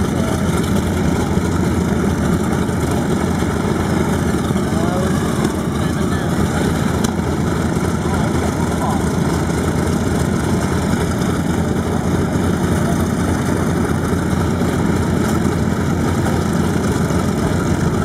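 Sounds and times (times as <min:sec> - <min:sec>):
radial aircraft engines idling: 0:00.0 - 0:18.0.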